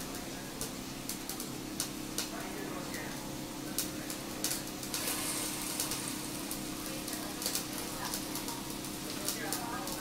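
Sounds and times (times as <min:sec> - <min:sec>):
grill fan humming: 0:00.0 - 0:10.0
meat sizzling on a grill: 0:00.0 - 0:10.0
skewers clicking on metal grate: 0:03.8 - 0:10.0.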